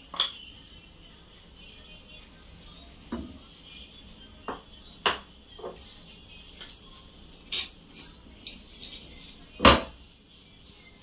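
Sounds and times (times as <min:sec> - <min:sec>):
metal spoon clinking on containers: 0:05.6 - 0:09.4.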